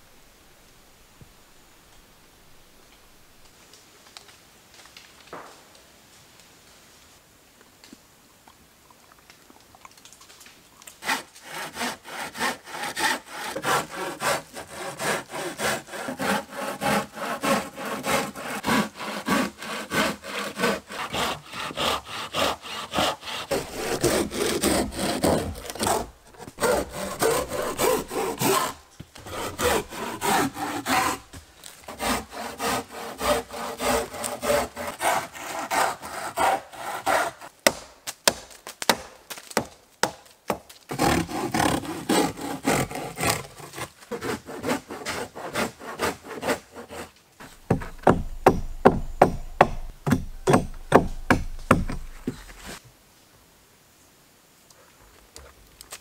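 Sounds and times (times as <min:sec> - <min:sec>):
hand saw cutting wood: 0:11.0 - 0:37.5, 0:40.9 - 0:52.8.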